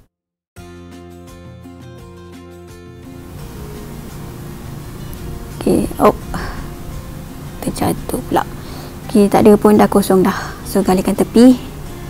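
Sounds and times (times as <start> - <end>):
background music: 0.6 - 12.0.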